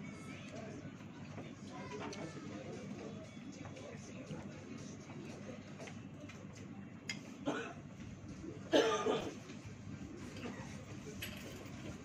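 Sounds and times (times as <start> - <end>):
restaurant background noise: 0.0 - 12.0
person coughing: 7.4 - 7.8, 8.7 - 9.4.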